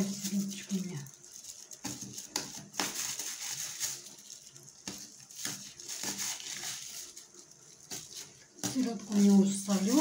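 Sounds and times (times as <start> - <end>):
knife cutting fish: 4.8 - 7.0.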